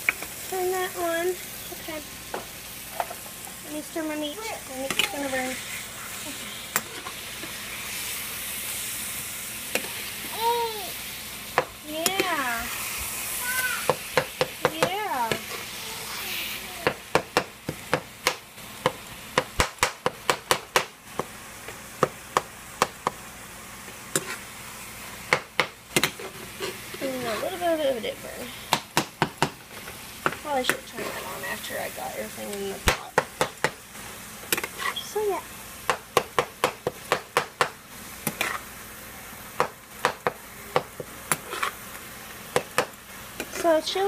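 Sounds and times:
meat sizzling: 0:00.0 - 0:44.0
spatula scraping frying pan: 0:02.4 - 0:10.3, 0:12.0 - 0:17.0, 0:23.8 - 0:24.6, 0:25.9 - 0:28.6, 0:29.7 - 0:32.0, 0:34.4 - 0:35.3, 0:38.1 - 0:38.8, 0:39.6 - 0:44.0.

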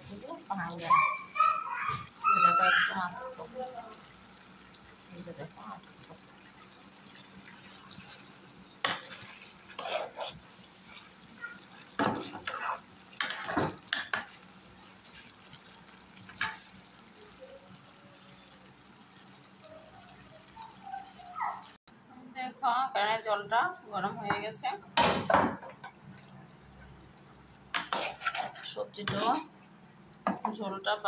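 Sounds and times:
gravy sizzling: 0:00.0 - 0:21.9, 0:24.0 - 0:31.0
metal spatula scraping a pan: 0:07.8 - 0:14.4, 0:27.7 - 0:29.5.

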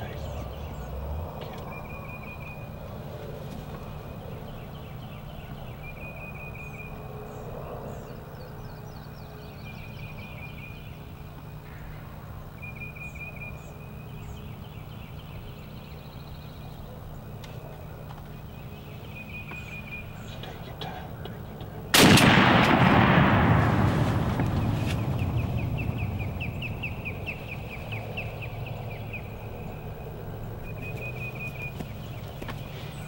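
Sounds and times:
steady low rumble: 0:00.0 - 0:33.0
songbird dry trill: 0:18.3 - 0:33.0.

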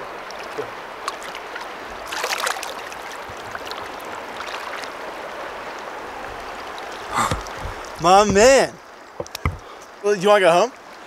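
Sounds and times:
water splash: 0:00.0 - 0:05.0
river flowing: 0:00.0 - 0:11.0.

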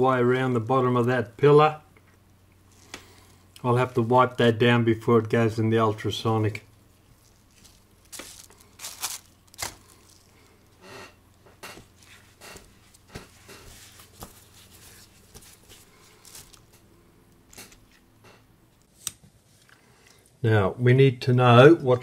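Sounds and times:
cloth rustling while wiping: 0:11.8 - 0:16.7.

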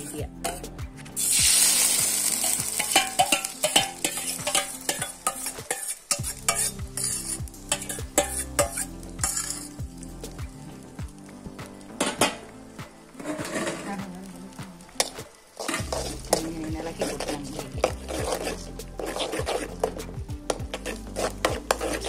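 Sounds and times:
spoon scraping and tapping pan: 0:00.0 - 0:00.8, 0:02.4 - 0:09.8, 0:15.0 - 0:22.0
egg sizzling in oil: 0:01.2 - 0:22.0.

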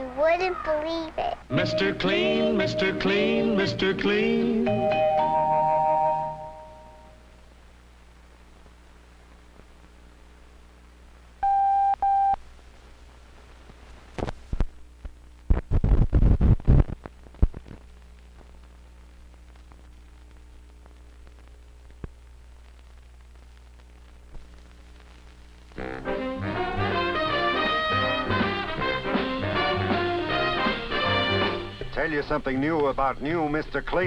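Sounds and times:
faint steady hum: 0:00.0 - 0:34.0
steady beep tone: 0:11.4 - 0:12.4
film crackling pops and clicks: 0:13.6 - 0:25.8.

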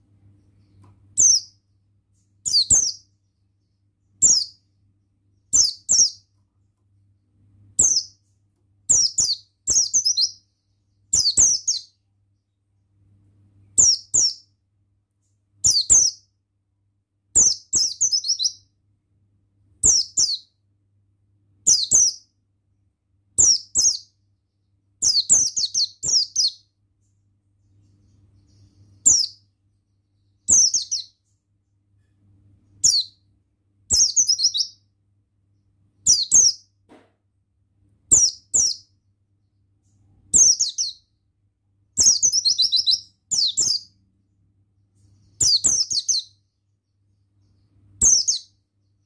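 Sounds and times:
bird chirping: 0:00.0 - 0:16.6, 0:17.2 - 0:19.0, 0:19.6 - 0:20.8, 0:21.5 - 0:22.4, 0:23.2 - 0:36.8, 0:38.0 - 0:49.0.

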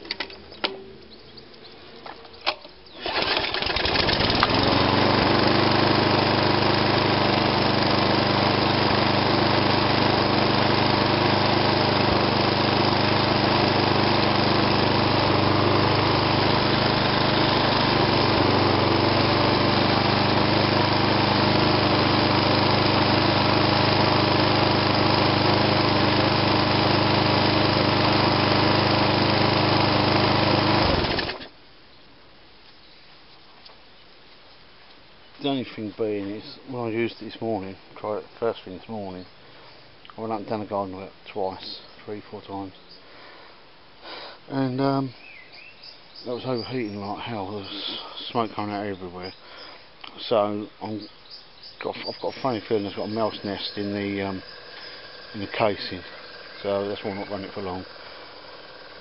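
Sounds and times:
lawnmower engine starting and running: 0:02.0 - 0:31.6, 0:46.4 - 0:59.0.

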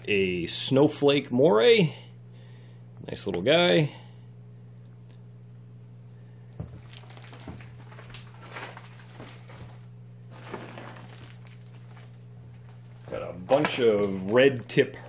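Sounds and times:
steady low hum: 0:00.0 - 0:15.0
plastic bags crinkling: 0:06.6 - 0:14.9.

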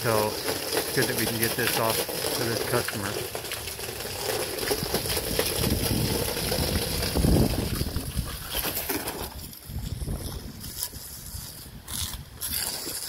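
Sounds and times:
water spraying on siding: 0:00.0 - 0:11.8.

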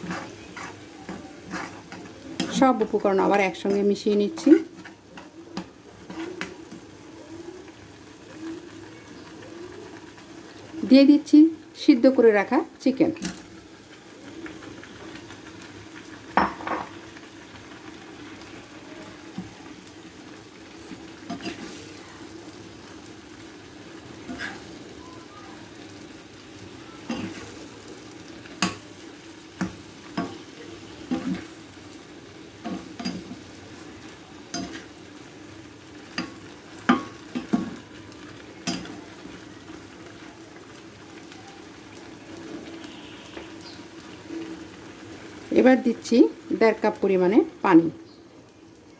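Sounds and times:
spoon clinking and scraping pan: 0:00.0 - 0:06.6, 0:21.3 - 0:21.8, 0:27.1 - 0:27.5, 0:32.6 - 0:33.4, 0:34.5 - 0:34.9, 0:38.6 - 0:39.0
low sizzle: 0:00.0 - 0:48.9.

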